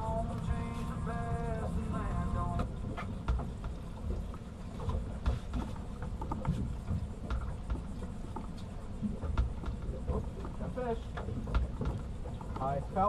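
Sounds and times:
light knocks and taps: 2.6s - 12.7s.

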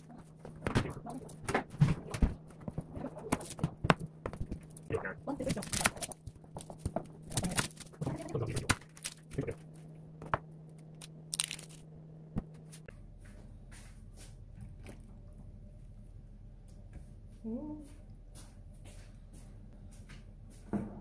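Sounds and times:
faint low hum: 0.0s - 21.0s
onion skin crackling and tearing: 4.5s - 9.8s, 10.8s - 11.8s.

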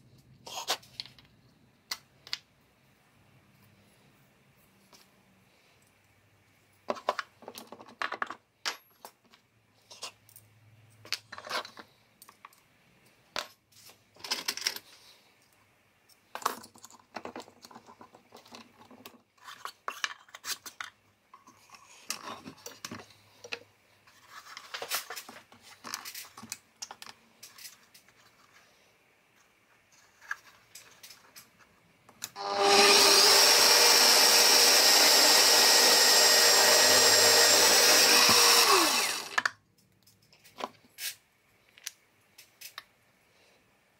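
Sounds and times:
electric drill running: 32.4s - 39.4s.

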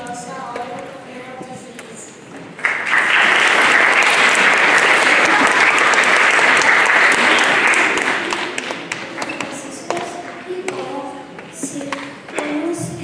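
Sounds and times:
audience applauding: 2.6s - 9.4s.

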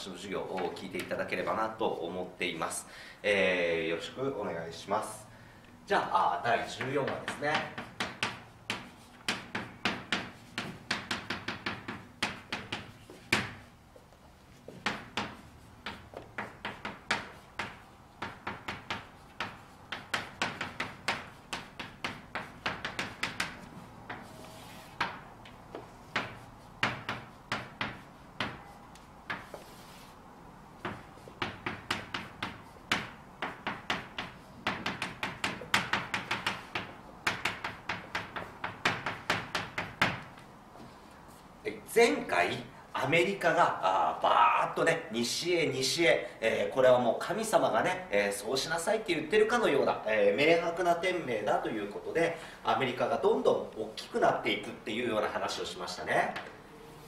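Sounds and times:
chalk tapping on a chalkboard: 0.4s - 1.6s, 6.5s - 30.1s, 30.8s - 41.4s
chalk scraping strokes: 6.5s - 39.6s.

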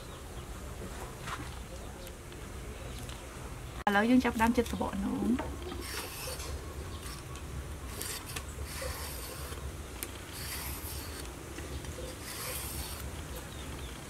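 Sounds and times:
knife scraping gourd skin: 5.6s - 13.1s.

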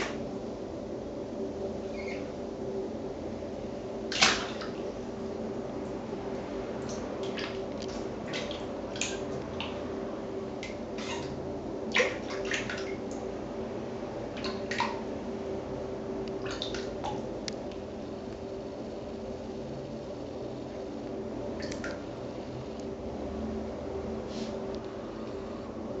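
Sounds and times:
steady hum: 0.0s - 26.0s
water splashes and drips: 4.1s - 4.8s, 6.9s - 9.8s, 10.6s - 13.2s, 14.4s - 15.0s, 16.4s - 17.2s.

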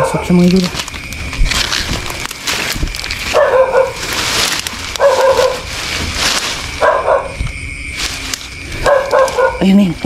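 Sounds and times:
bullfrog calling: 3.1s - 10.0s.

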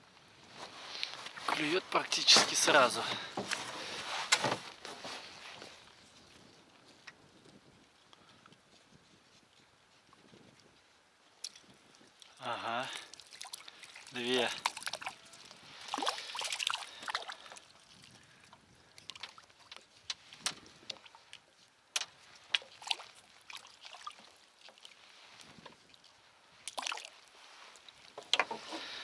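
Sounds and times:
water splashing and trickling: 0.6s - 9.2s, 10.0s - 29.0s
fishing tackle clicks and knocks: 28.1s - 28.8s.

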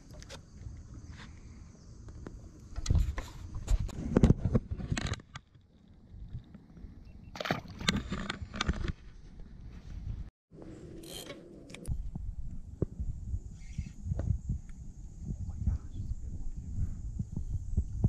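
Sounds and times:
wind rumble on microphone: 2.2s - 7.1s, 7.8s - 10.3s, 11.8s - 18.0s
splash in water: 7.3s - 7.9s.

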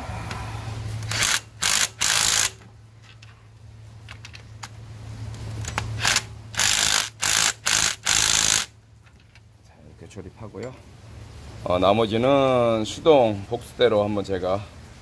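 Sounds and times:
impact driver whirring and rattling: 1.0s - 2.7s, 5.6s - 8.7s.

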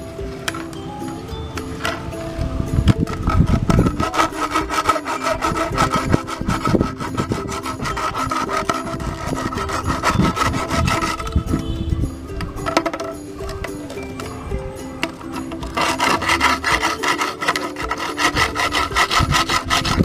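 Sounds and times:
hacksaw cutting plastic pipe: 2.9s - 11.8s, 15.0s - 20.0s.

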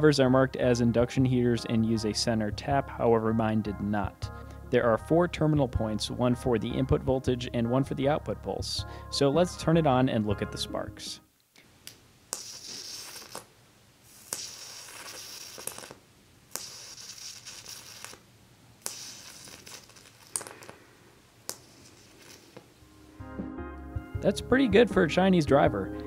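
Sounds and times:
electric arc hissing and crackling: 12.3s - 20.8s, 21.4s - 22.8s.

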